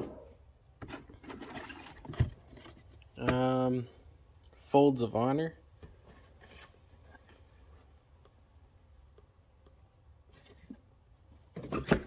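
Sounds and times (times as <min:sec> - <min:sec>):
cardboard boxes rustling: 0:00.8 - 0:03.4, 0:05.8 - 0:07.9, 0:10.3 - 0:12.0.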